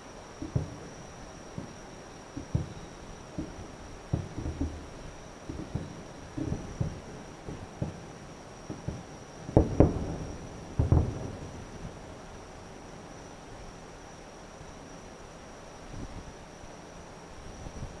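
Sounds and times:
distant firework booms: 0:00.4 - 0:00.9, 0:02.4 - 0:12.0.

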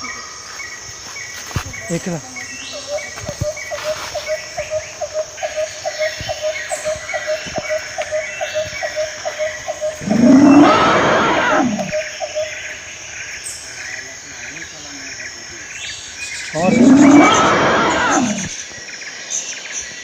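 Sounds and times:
faint chirping: 0:00.0 - 0:20.0
loud rough animal cry: 0:09.9 - 0:12.0, 0:16.5 - 0:18.6.

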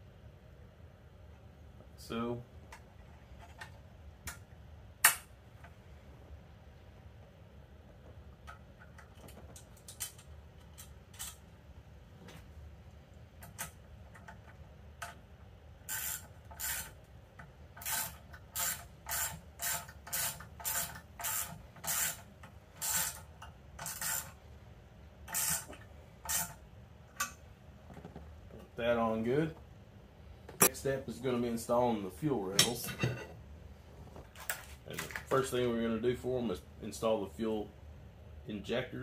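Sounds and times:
ratchet wrench ratcheting: 0:15.9 - 0:16.9, 0:17.8 - 0:23.2.

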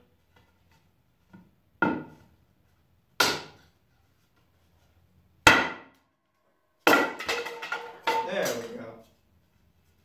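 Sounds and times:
hatchet chopping wooden board: 0:01.8 - 0:02.2, 0:03.2 - 0:03.7, 0:05.4 - 0:06.0, 0:06.8 - 0:07.4.

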